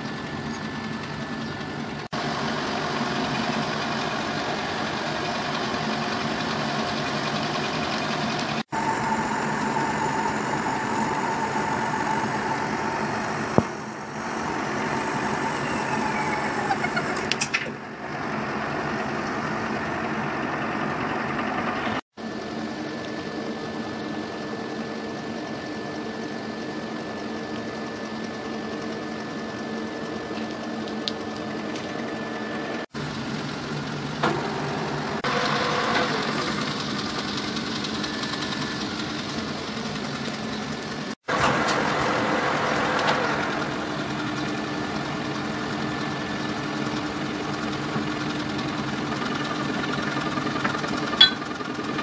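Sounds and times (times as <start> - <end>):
metal lathe humming and whining: 0.0 - 52.0.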